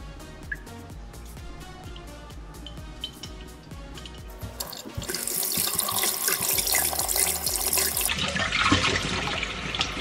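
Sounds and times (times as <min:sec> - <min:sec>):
faucet running into metal sink: 0:04.5 - 0:10.0.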